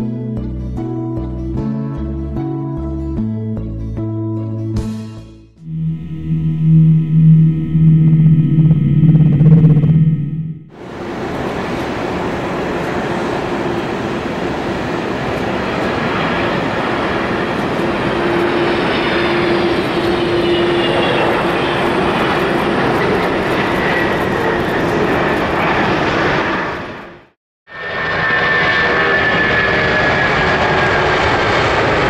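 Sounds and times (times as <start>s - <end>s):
turbine whine sliding down: 5.6s - 14.6s
jet engines roaring: 5.6s - 32.0s.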